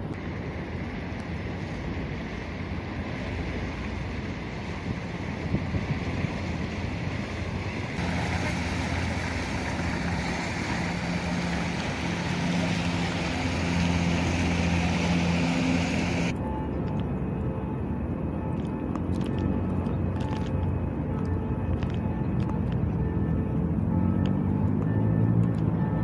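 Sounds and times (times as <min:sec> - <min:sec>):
boat engine low hum: 0:00.0 - 0:26.0
wind buffeting microphone: 0:03.9 - 0:16.4
river water splashing: 0:06.1 - 0:16.4.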